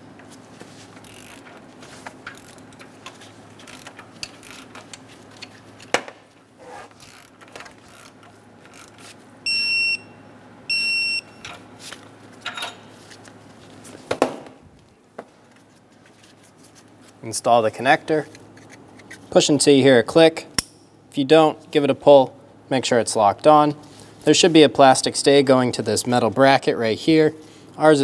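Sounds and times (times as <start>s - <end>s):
short electronic beeps: 9.5s - 11.4s.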